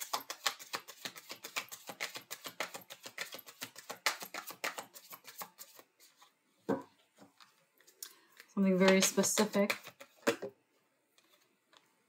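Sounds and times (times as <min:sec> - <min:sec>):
cards being shuffled: 0:00.0 - 0:06.4, 0:07.4 - 0:10.5.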